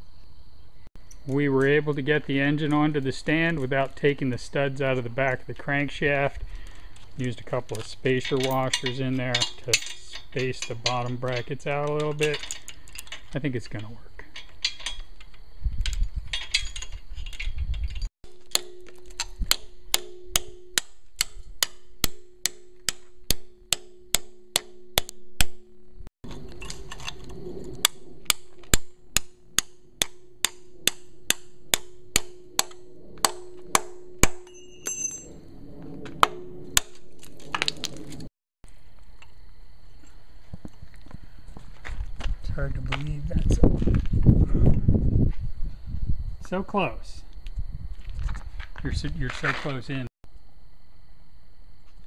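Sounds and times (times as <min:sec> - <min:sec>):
hammer striking a chisel on metal: 0:18.4 - 0:25.6, 0:28.3 - 0:35.3.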